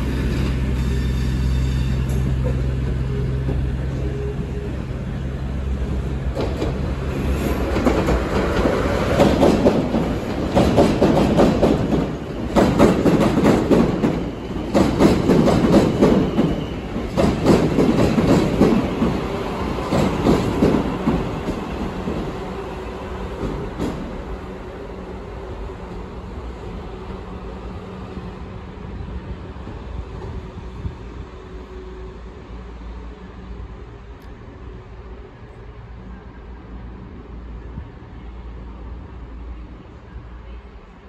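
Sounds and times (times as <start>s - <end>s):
diesel train engine hum: 0.0s - 41.0s
train wheels clattering over rail joints: 7.6s - 19.2s.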